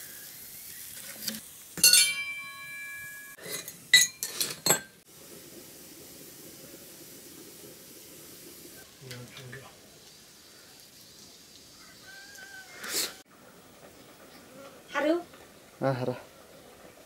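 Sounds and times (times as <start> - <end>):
metal cookware clattering: 1.8 - 5.0
steel vessel ringing: 1.8 - 5.0.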